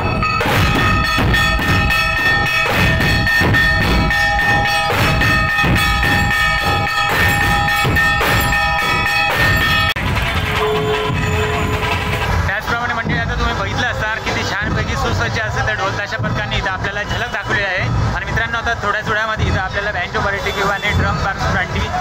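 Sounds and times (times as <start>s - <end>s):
bright metallic ringing: 0.0s - 12.2s
large drums beaten with sticks: 0.0s - 22.0s.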